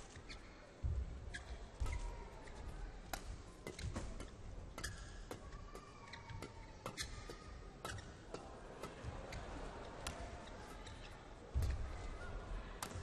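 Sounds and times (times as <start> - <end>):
shoes squeaking on court: 0.0 - 5.4, 6.0 - 11.8
rackets striking shuttlecock: 12.8 - 13.0.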